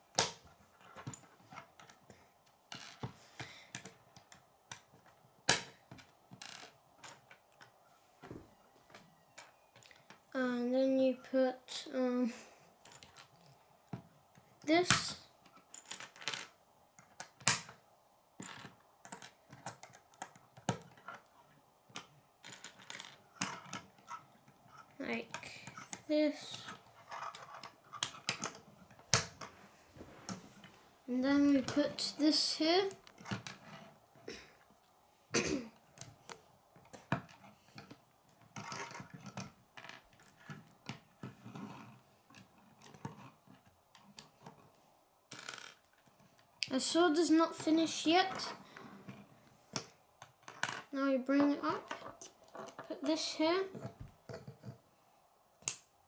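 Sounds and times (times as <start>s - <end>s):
plastic pieces clicking: 15.0s - 17.8s, 18.4s - 21.3s, 21.9s - 29.5s.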